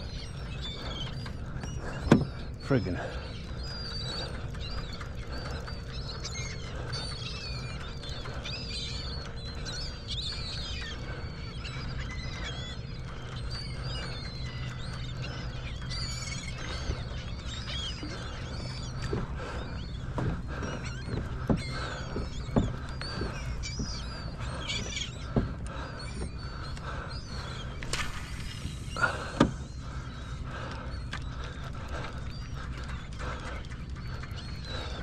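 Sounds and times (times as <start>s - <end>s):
seabirds chirping: 0.0s - 35.0s
steady low hum: 0.0s - 35.0s.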